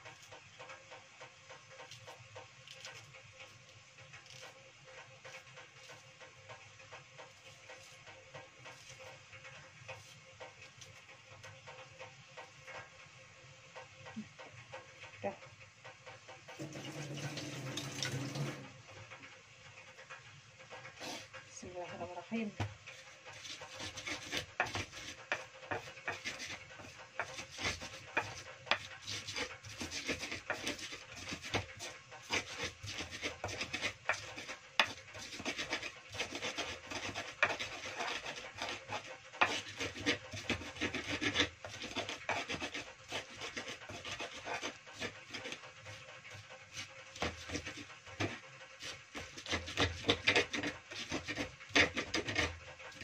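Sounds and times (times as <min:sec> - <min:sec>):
pestle scraping and crushing: 0:20.7 - 0:21.4, 0:22.6 - 0:53.0
pestle knocking on mortar: 0:22.6 - 0:45.5.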